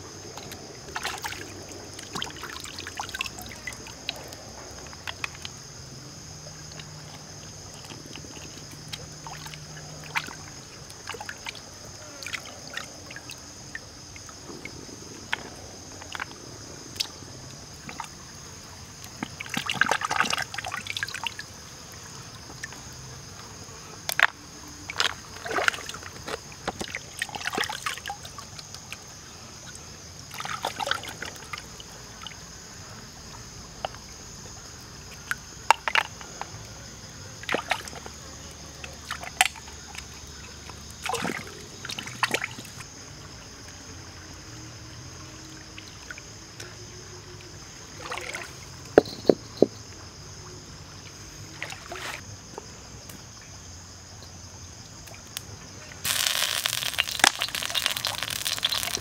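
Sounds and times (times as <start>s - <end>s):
stream water rushing: 56.0s - 59.0s
hands splashing in water: 56.1s - 59.0s.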